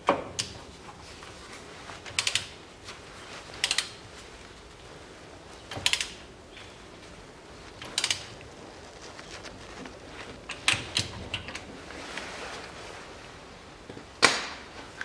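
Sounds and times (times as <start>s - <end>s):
socket ratchet clicking: 5.7s - 6.2s.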